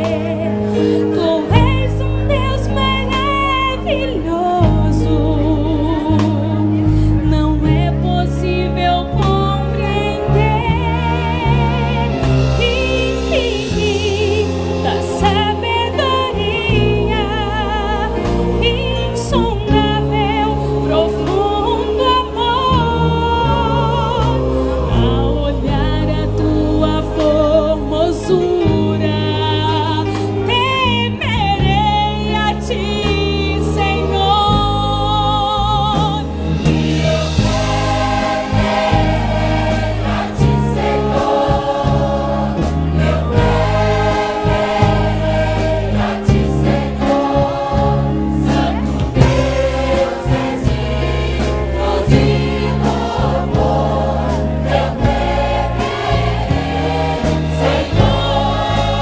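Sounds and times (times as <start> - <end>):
brass band playing: 0.0 - 59.0
tuba bass notes: 1.4 - 59.0
choir singing: 8.5 - 29.9, 35.6 - 59.0.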